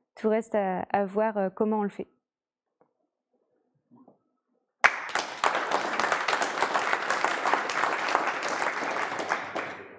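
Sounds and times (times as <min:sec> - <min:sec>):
audience applauding: 0:04.8 - 0:09.9.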